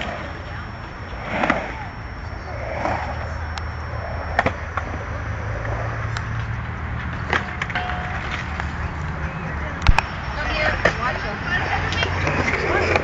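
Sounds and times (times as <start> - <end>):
skateboard clacks: 6.3 - 9.1
skateboard wheels rumbling on concrete: 10.3 - 13.0.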